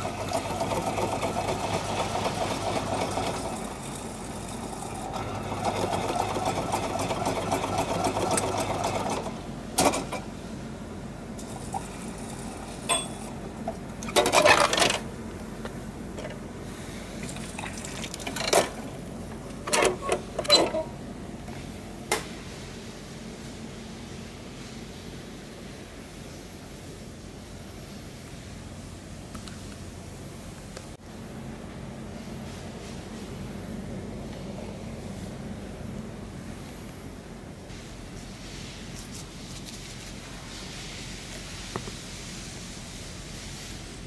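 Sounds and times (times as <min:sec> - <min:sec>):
vending machine motor whirring: 0:00.0 - 0:10.4.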